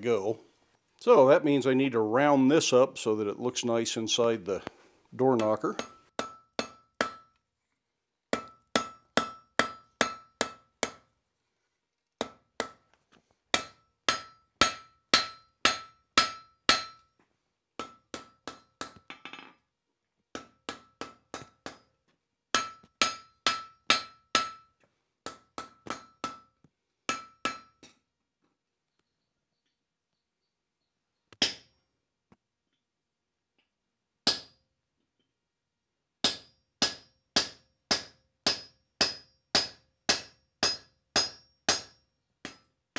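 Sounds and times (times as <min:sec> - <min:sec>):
hammer striking steel on anvil: 0:05.4 - 0:07.4, 0:08.3 - 0:11.0, 0:13.5 - 0:17.1, 0:17.8 - 0:19.4, 0:20.4 - 0:21.9, 0:22.5 - 0:24.7, 0:25.3 - 0:26.5, 0:27.1 - 0:28.0, 0:31.4 - 0:31.7, 0:34.2 - 0:34.6, 0:36.2 - 0:42.7.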